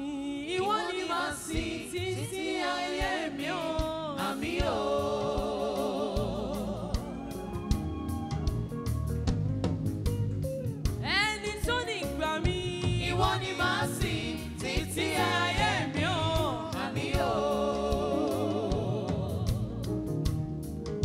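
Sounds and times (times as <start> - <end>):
woman singing gospel song: 0.0 - 7.4, 11.1 - 19.8
backing vocalists: 0.0 - 8.4, 12.7 - 20.1
live band with drums and guitar: 0.7 - 21.0.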